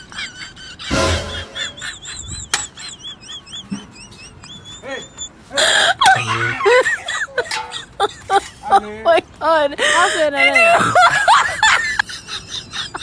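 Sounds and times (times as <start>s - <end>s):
voices yelping and laughing: 0.0s - 13.0s
high warbling whistle: 0.9s - 2.6s.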